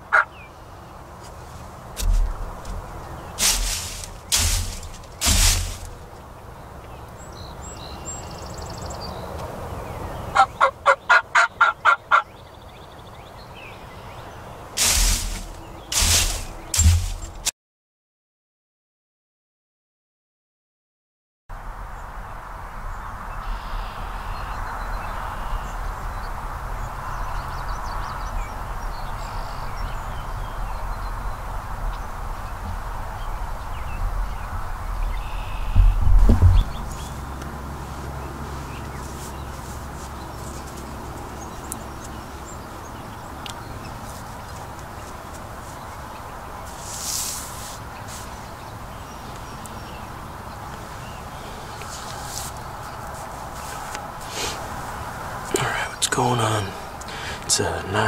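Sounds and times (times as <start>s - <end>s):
constant rushing hiss: 1.2s - 6.4s, 14.8s - 17.5s, 43.9s - 57.8s
turkey gobbling: 10.4s - 12.2s
songbird calls: 23.0s - 37.4s.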